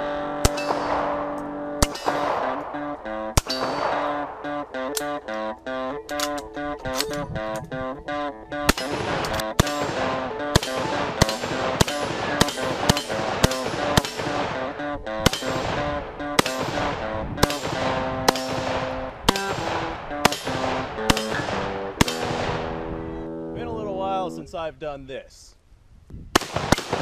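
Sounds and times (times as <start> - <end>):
guitar music: 0.0 - 24.7
rifle shots: 0.4 - 5.2, 8.7 - 23.0, 26.3 - 27.0.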